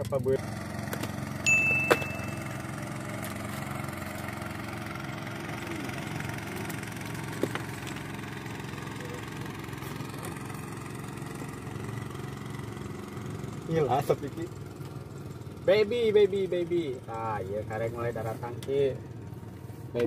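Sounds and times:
engine humming: 0.0 - 20.0.

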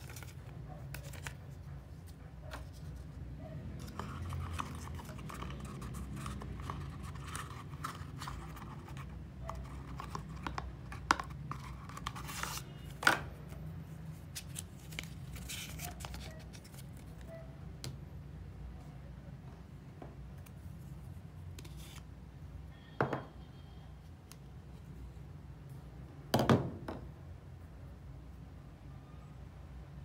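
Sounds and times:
cardboard rustling: 0.0 - 1.7, 14.2 - 17.2.

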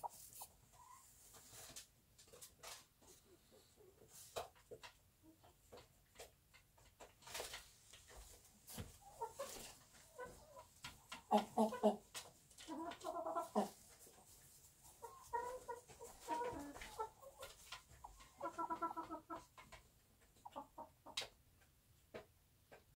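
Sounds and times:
hen clucking: 0.0 - 1.1, 8.8 - 21.4.

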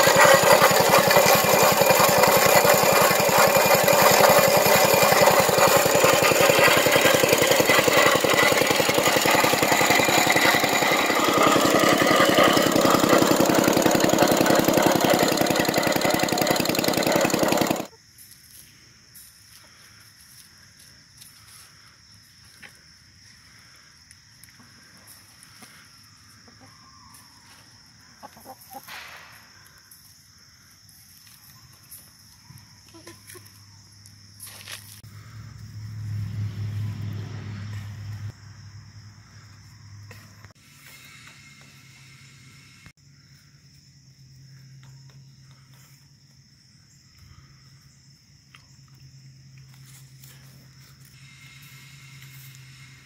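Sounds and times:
hens clucking: 28.2 - 28.9.

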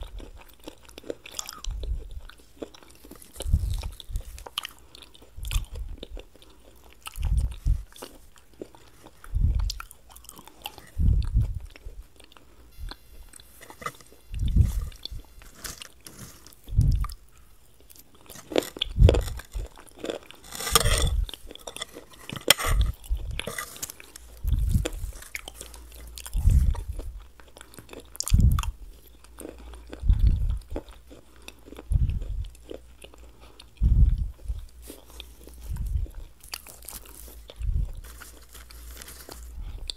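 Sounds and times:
soft chewing: 0.0 - 39.9
crisp crunching: 13.4 - 16.7, 17.9 - 28.1, 36.4 - 39.9.

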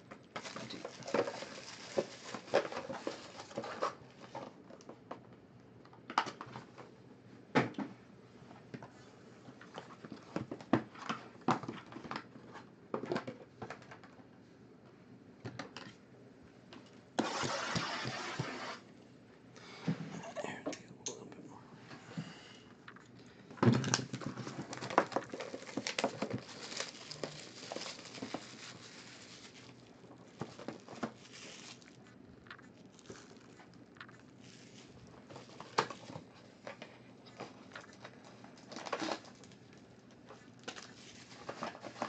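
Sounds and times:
foil wrappers rustling: 0.4 - 4.5, 23.9 - 42.0.

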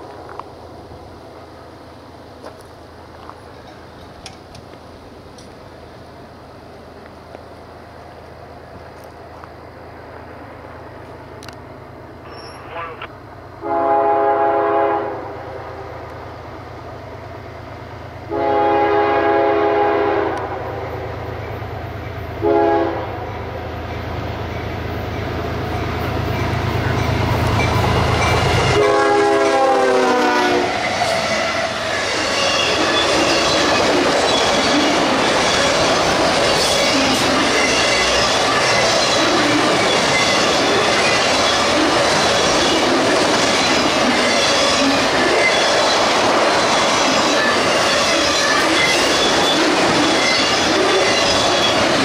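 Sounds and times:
train wheels clickety-clack: 2.4 - 5.6, 23.8 - 29.2, 30.7 - 52.0
train horn blasts: 13.6 - 16.0, 18.3 - 21.3, 22.4 - 23.4, 28.6 - 30.7
locomotive engine drone: 20.4 - 52.0.

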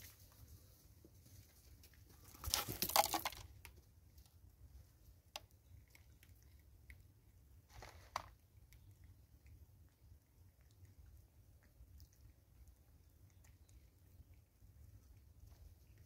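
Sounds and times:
small clicks of grains: 1.8 - 4.3, 7.7 - 8.4
corn kernels rattling and scraping: 2.1 - 3.5, 7.7 - 8.4.

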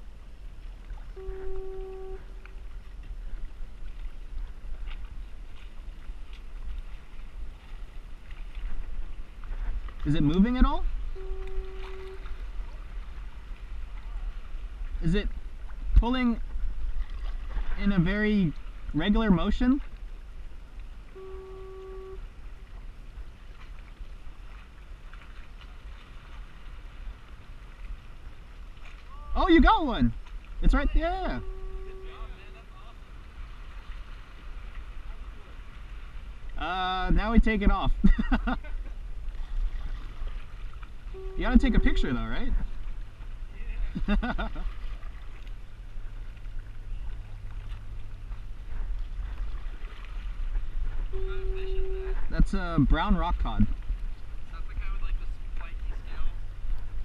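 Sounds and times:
steady humming tone: 0.0 - 4.2, 9.9 - 14.9, 20.2 - 24.1, 30.3 - 36.5
soft splashes: 0.0 - 57.0
water lapping against kayak: 0.0 - 57.0
wind rumbling on microphone: 0.0 - 57.0
steady pitched tone: 11.1 - 12.3, 21.1 - 22.3, 30.7 - 32.5, 41.1 - 42.6, 51.0 - 52.8.

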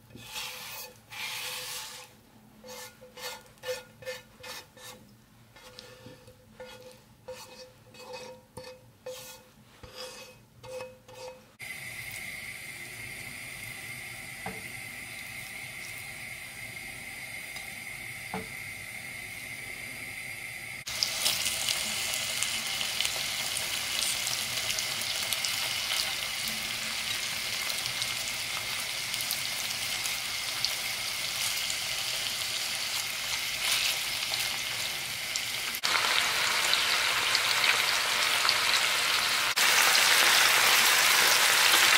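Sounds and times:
spatula scraping pan: 0.0 - 11.6
meat sizzling in oil: 11.6 - 41.9.

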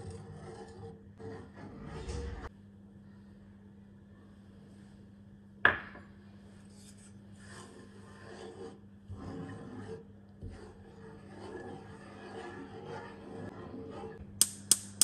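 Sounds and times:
wooden spoon scraping a pan: 0.0 - 2.5, 6.5 - 14.2.

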